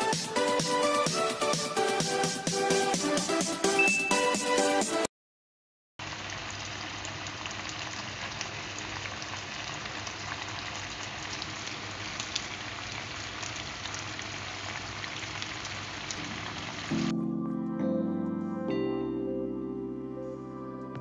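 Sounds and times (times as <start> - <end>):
sauce bubbling in a pan: 6.0 - 16.9.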